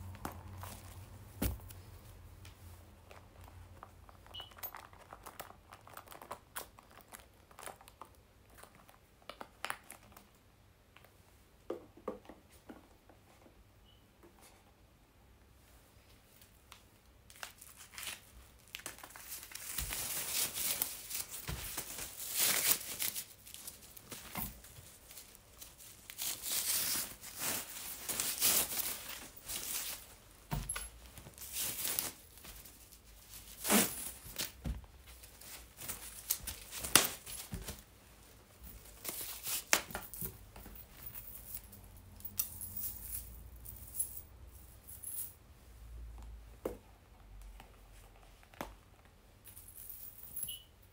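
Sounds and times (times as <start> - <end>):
packaging wrap rustling: 3.0 - 10.2, 17.3 - 30.2, 30.8 - 37.9.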